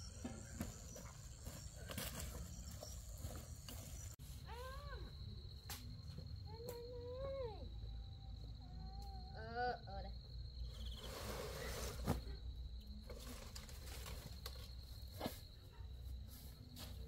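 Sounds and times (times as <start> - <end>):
insects trilling: 0.0 - 16.8
rustle: 10.7 - 12.4.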